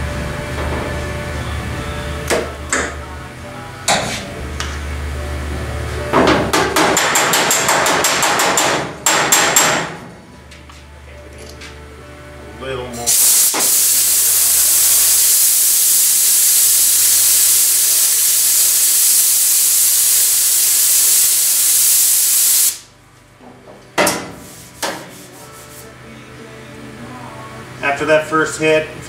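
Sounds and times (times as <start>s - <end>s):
compressed air nozzle hissing: 13.0s - 22.9s
short air bursts: 13.1s - 22.9s.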